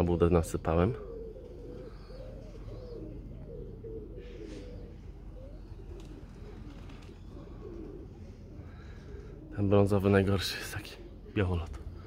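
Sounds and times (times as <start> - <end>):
pigeons cooing: 0.0 - 12.0.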